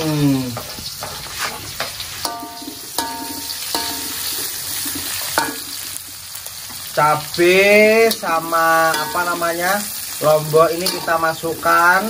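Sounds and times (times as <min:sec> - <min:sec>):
food sizzling in hot oil: 0:00.0 - 0:12.0
metal spatula clinking on wok: 0:02.2 - 0:04.3, 0:08.0 - 0:09.6, 0:10.8 - 0:11.2.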